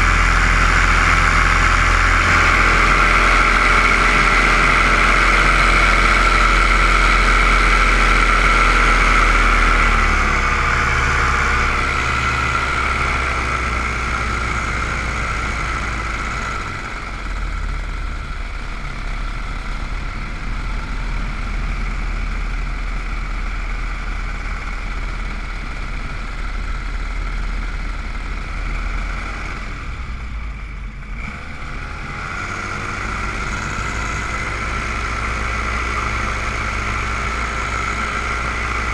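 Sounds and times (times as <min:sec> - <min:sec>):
drone propellers whining: 0:00.0 - 0:30.4.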